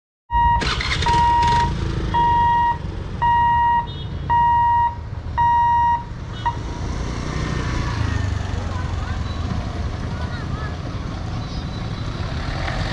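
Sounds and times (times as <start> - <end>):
level crossing warning beeps: 0.3 - 6.6
idling engines rumble: 0.4 - 12.9.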